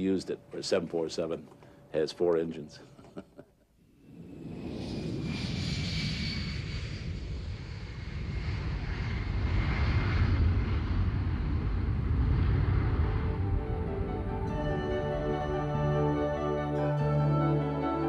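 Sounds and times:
high jet whine: 3.8s - 18.0s
jet engine roar: 4.0s - 17.3s.

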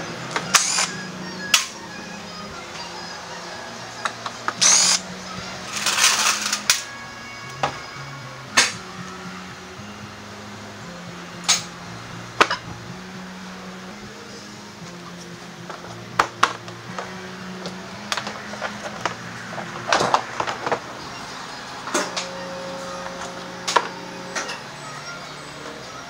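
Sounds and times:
background music with bass line: 0.0s - 26.0s
scraping rustles: 5.6s - 6.7s.

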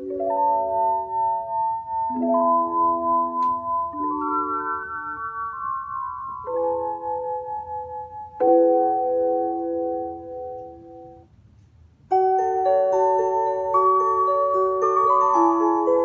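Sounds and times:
bell-like keyboard melody: 0.0s - 11.3s, 12.1s - 16.0s
electronic keyboard playing chords: 0.0s - 11.3s, 12.1s - 16.0s.

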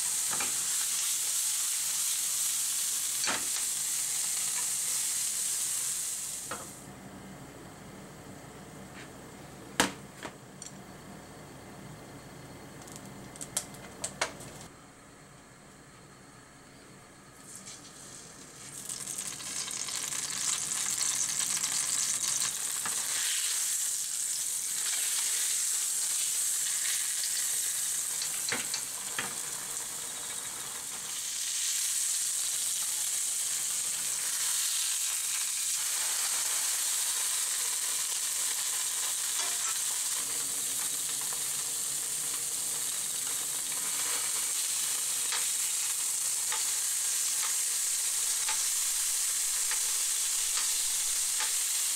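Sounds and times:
tofu sizzling in hot oil: 0.0s - 6.8s, 18.6s - 51.9s.

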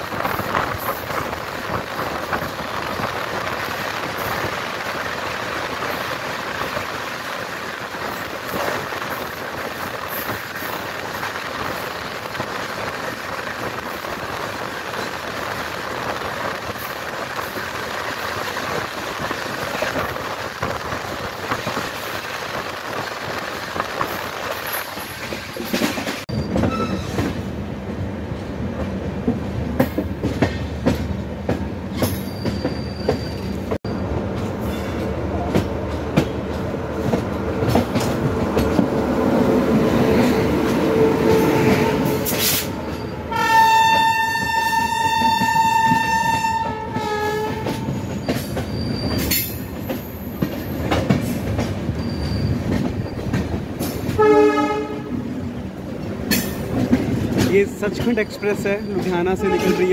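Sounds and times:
train wheels clattering over rails: 0.0s - 27.6s, 28.4s - 43.2s, 43.8s - 59.9s
locomotive horn blast: 43.3s - 47.9s, 54.2s - 55.2s, 59.4s - 59.9s.

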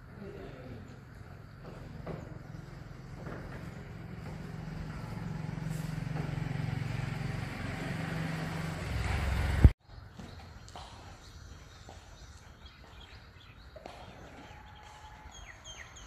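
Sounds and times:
vehicle engine drone: 0.0s - 12.3s.

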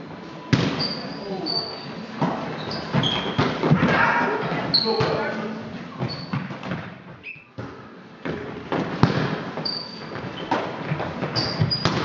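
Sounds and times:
shoes squeaking on court floor: 0.6s - 12.0s
volleyball struck by hands: 7.6s - 9.5s.

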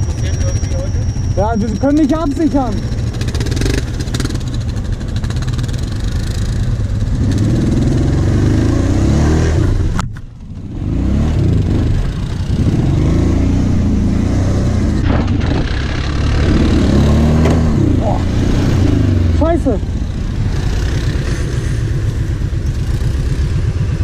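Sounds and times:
quad engine revving under load: 5.5s - 10.0s, 10.7s - 22.2s.

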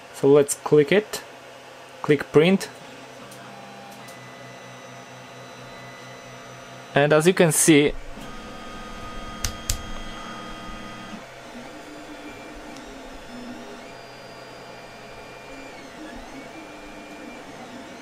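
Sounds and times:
stepper motors whining: 7.8s - 18.0s.

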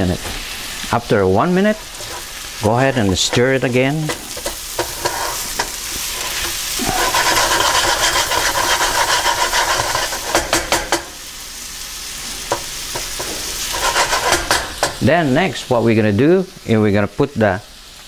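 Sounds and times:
meat sizzling in a skillet: 0.0s - 18.0s
wooden spatula scraping pan: 1.5s - 11.0s, 12.4s - 15.0s.

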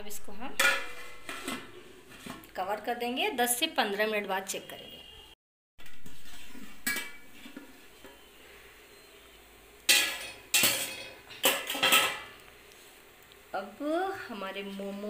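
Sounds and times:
metal cookware clattering: 0.4s - 2.5s, 5.8s - 8.2s, 9.9s - 12.4s.

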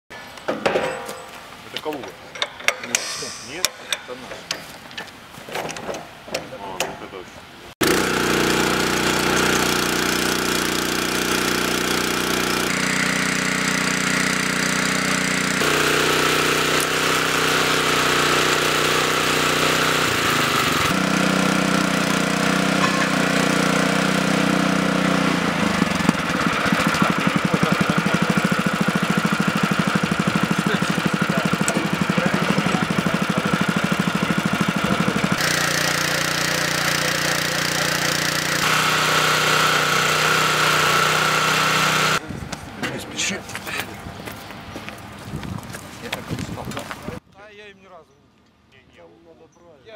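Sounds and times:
small petrol engine running: 7.8s - 42.2s.

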